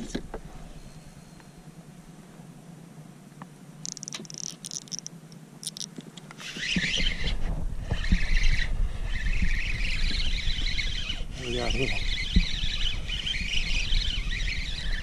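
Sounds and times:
fishing reel buzzing and clicking: 3.8 - 7.2, 8.0 - 15.0.

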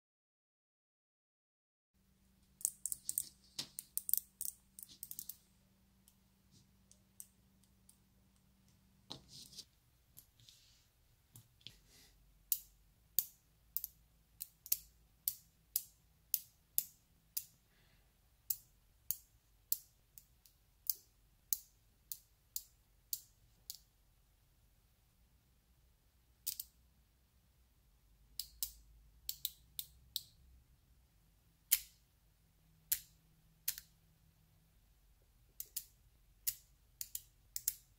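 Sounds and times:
magnetic balls clicking: 2.5 - 5.4, 12.5 - 17.6, 32.8 - 34.0, 35.6 - 37.9.

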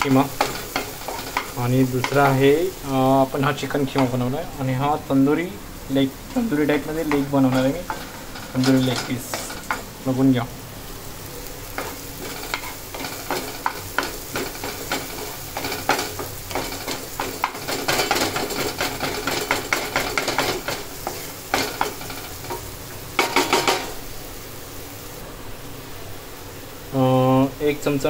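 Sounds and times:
onions and tomatoes sizzling in oil: 0.0 - 28.0
spatula scraping a frying pan: 7.0 - 9.9, 11.8 - 23.9.

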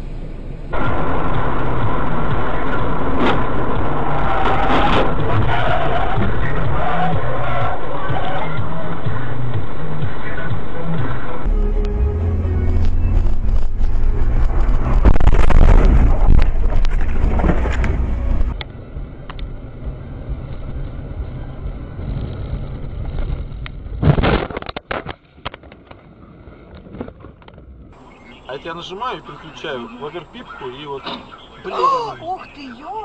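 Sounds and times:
engine and road noise: 0.0 - 33.0
loud crash impacts: 0.8 - 7.2, 12.4 - 18.6
wind rumbling on microphone: 12.7 - 28.4.

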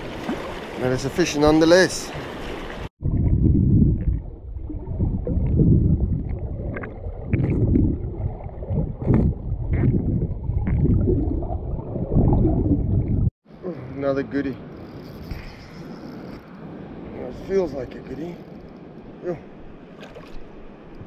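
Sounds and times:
muffled underwater river rushing: 0.0 - 13.4.

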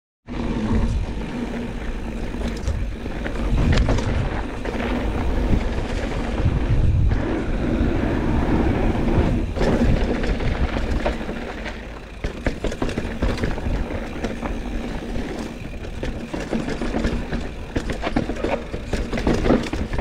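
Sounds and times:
bike tyre rumble and rattling: 0.2 - 20.0
wind rushing on microphone: 2.4 - 11.3.

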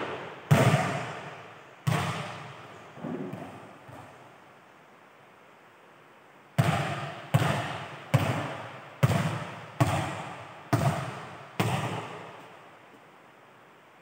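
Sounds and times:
volleyball bouncing on hard floor: 0.0 - 4.2, 6.6 - 12.5.

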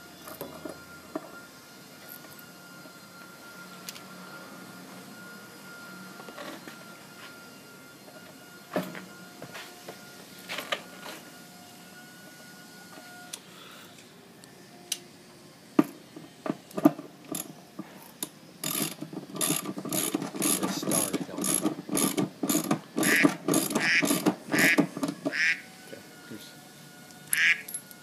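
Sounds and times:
hand ratchet clicking: 18.2 - 24.9.

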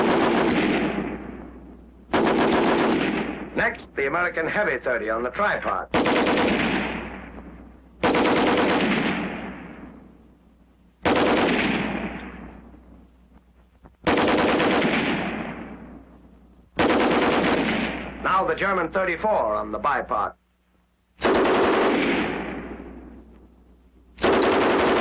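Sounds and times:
machine gun firing bursts: 0.0 - 1.4, 2.1 - 3.7, 5.9 - 7.2, 8.0 - 9.7, 11.0 - 12.2, 14.0 - 15.8, 16.8 - 18.2, 21.2 - 22.8, 24.2 - 25.0.

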